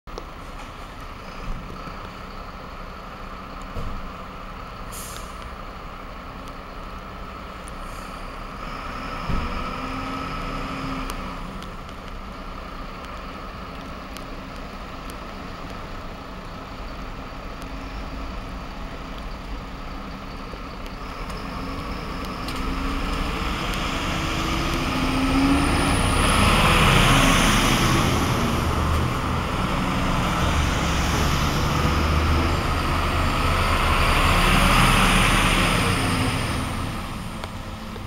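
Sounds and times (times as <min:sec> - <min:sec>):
fire truck diesel engines: 0:00.1 - 0:38.0
air brake hisses: 0:04.9 - 0:05.5.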